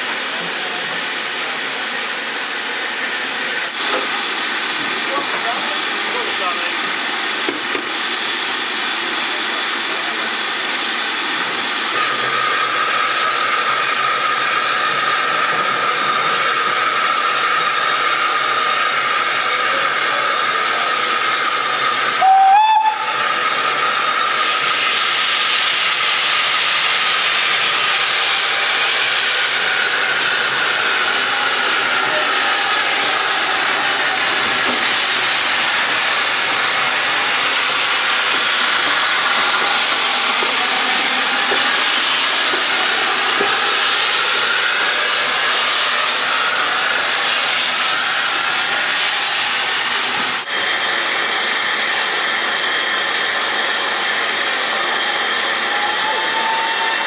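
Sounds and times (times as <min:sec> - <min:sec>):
steam hissing: 0:00.0 - 0:57.0
steam whistle blast: 0:22.2 - 0:23.3, 0:55.1 - 0:57.0.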